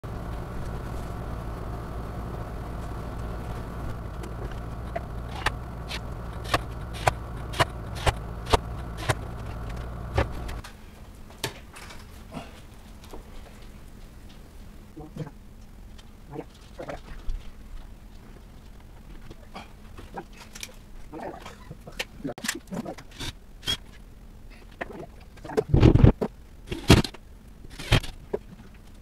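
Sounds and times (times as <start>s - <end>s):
low workshop hum: 0.0s - 29.0s
hand tool clicking on wood: 4.2s - 10.6s.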